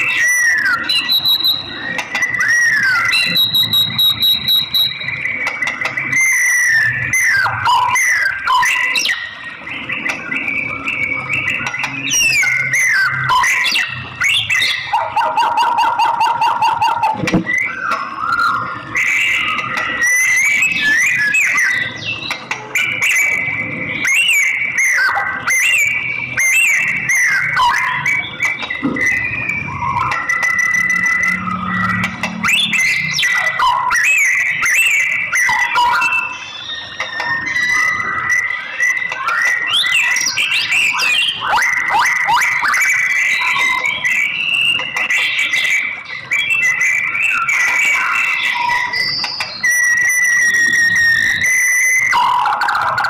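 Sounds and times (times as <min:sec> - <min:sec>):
bird singing whistled notes: 0:00.0 - 0:53.0.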